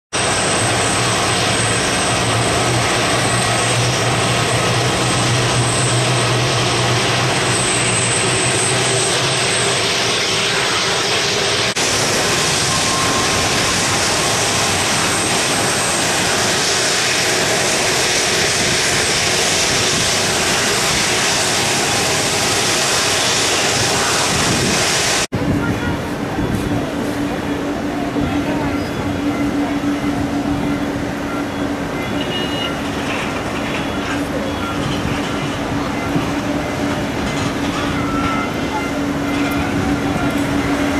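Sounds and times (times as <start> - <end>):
distant jet engines roaring: 0.1 - 40.9
faint high whistle: 28.7 - 32.8.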